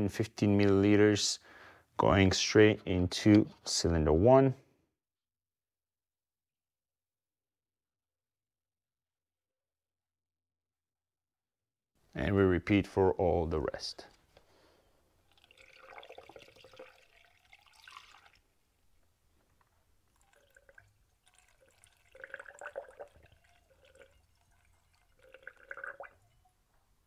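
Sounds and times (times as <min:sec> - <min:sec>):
liquid trickling and gurgling: 0:15.2 - 0:18.6, 0:20.0 - 0:26.6.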